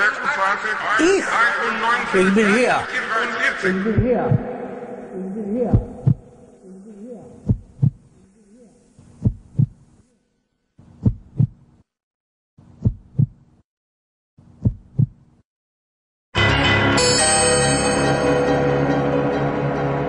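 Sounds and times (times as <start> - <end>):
heartbeat thumps: 3.8 - 4.5, 5.6 - 6.4, 7.4 - 8.1, 9.0 - 9.9, 10.8 - 11.7, 12.6 - 13.6, 14.5 - 15.3.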